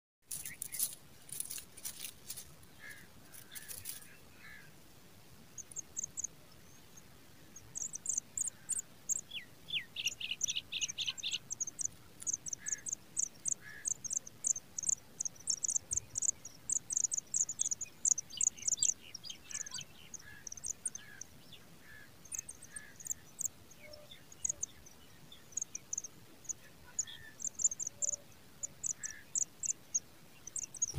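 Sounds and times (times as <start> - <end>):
scratchy rustles: 0.3 - 2.6, 3.3 - 4.1
nestlings begging with high chirps: 5.5 - 30.9.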